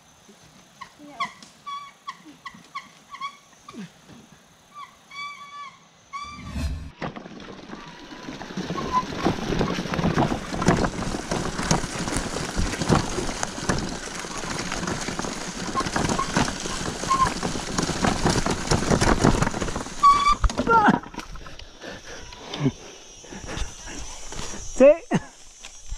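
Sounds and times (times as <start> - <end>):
bicycle brakes squeaking: 4.7 - 6.6, 7.8 - 10.7, 11.3 - 21.2
bicycle rattling over bumps: 7.0 - 24.8.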